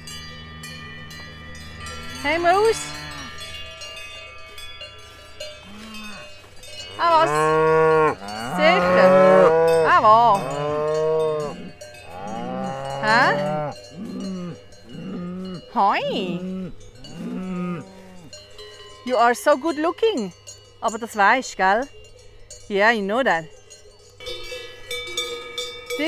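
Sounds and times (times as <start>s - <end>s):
cows mooing: 0.0s - 4.0s, 5.6s - 18.4s
cowbells ringing: 0.0s - 26.0s.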